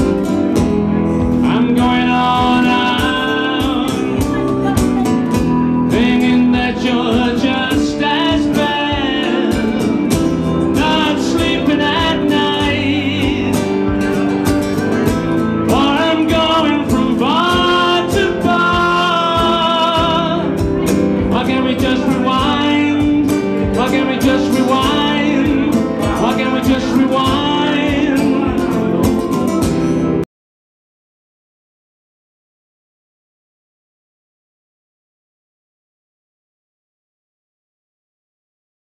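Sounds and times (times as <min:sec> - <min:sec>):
stomp box knocking beat: 0:00.0 - 0:30.0
man singing: 0:00.0 - 0:30.2
acoustic guitar: 0:00.0 - 0:30.3.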